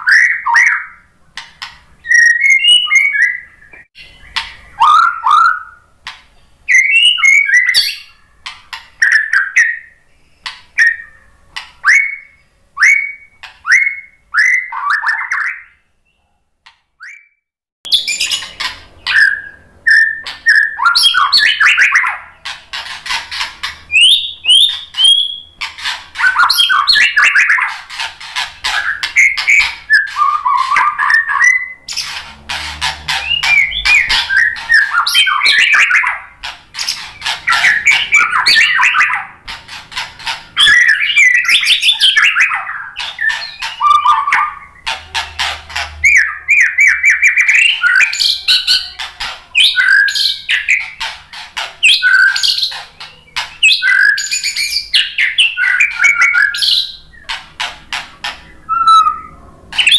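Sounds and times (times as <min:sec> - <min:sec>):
bird singing whistles: 0:02.0 - 0:05.8, 0:06.7 - 0:08.2, 0:09.0 - 0:11.2, 0:11.8 - 0:15.8, 0:17.0 - 0:22.3, 0:23.9 - 0:25.6, 0:26.2 - 0:27.7, 0:28.8 - 0:32.1, 0:33.2 - 0:39.3, 0:40.6 - 0:44.9, 0:46.0 - 0:49.0, 0:49.6 - 0:51.0, 0:51.8 - 0:52.8, 0:53.6 - 0:57.2, 0:58.6 - 0:59.9
rapid clicking bird notes: 0:31.9 - 0:42.2.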